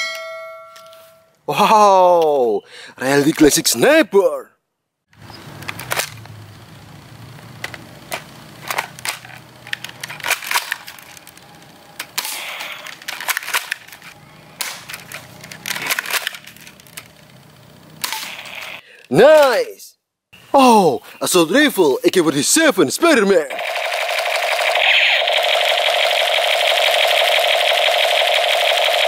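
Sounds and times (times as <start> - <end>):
toy rifle clicks and snaps: 7.6 - 17.2
low hum: 23.5 - 29.0.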